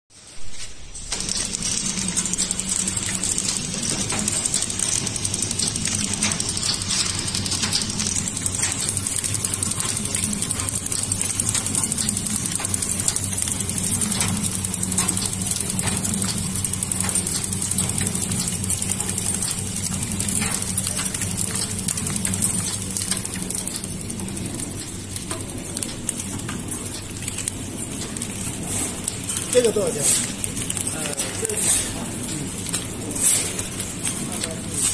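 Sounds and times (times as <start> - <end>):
packing machine clattering: 1.0 - 34.9.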